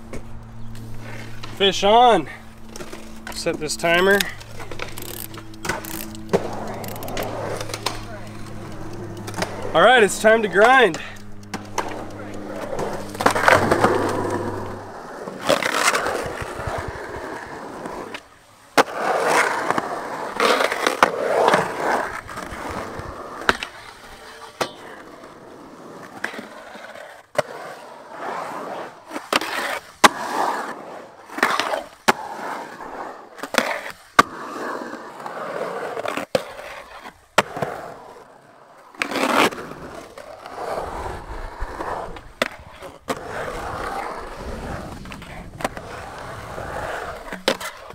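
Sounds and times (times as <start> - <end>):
skateboard wheels rolling on concrete: 0.0 - 47.9
skateboard clacking on concrete: 0.1 - 25.4, 31.3 - 47.9
metal trucks grinding on coping: 1.0 - 18.2.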